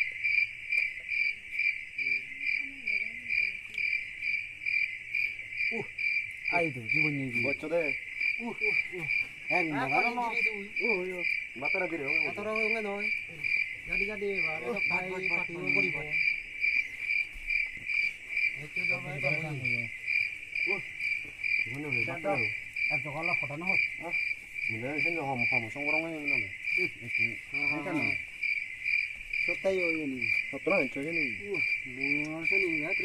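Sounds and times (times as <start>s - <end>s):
crickets chirping: 0.0s - 33.0s
men talking: 6.5s - 16.4s, 18.5s - 28.4s, 29.4s - 33.0s.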